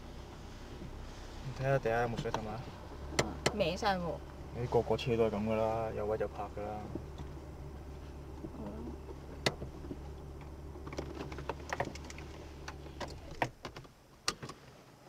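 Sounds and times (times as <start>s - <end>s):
car engine idling: 0.0s - 14.4s
clicks and knocks in car cabin: 2.1s - 3.8s, 8.4s - 14.8s.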